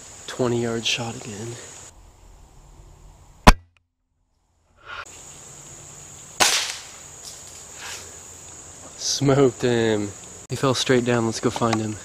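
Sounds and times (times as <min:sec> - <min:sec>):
faint insect hiss: 0:00.0 - 0:03.5, 0:04.3 - 0:12.0
air rifle shots: 0:06.4 - 0:07.0.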